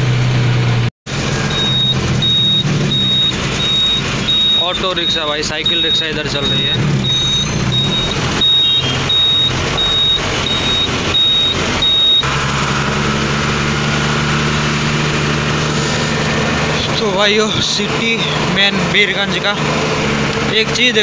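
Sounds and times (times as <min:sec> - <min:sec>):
road noise: 0:00.0 - 0:21.0
truck engine drone: 0:00.0 - 0:21.0
high electronic beeper: 0:01.4 - 0:12.3.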